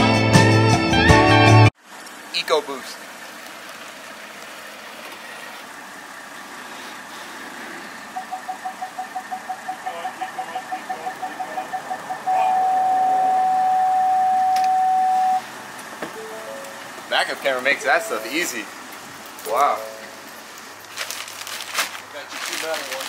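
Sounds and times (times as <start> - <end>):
vehicle engine running: 1.8 - 23.0
parking sensor beeping: 8.1 - 15.5, 16.1 - 20.4.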